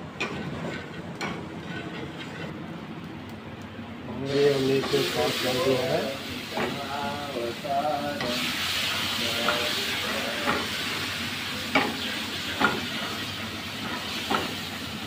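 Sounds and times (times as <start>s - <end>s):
sauce sizzling in a pan: 4.3s - 15.0s.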